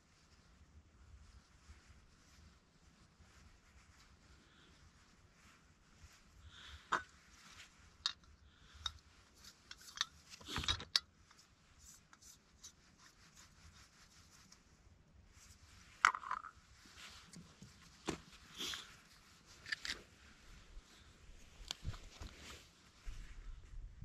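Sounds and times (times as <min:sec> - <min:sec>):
short rustle: 0:16.6 - 0:23.8.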